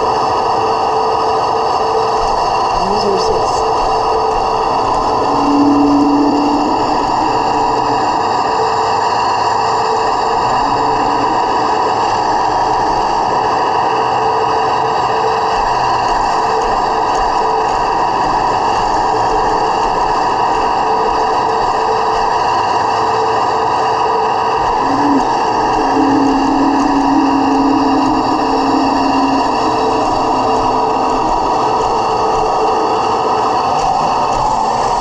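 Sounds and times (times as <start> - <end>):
simulated engine idle from speaker: 2.7 - 4.6.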